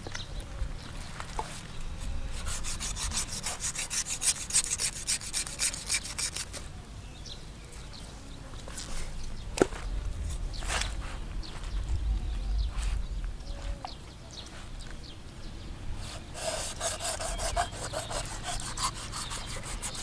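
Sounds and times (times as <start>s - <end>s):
knife scraping rough skin: 2.3s - 6.6s, 16.0s - 20.0s.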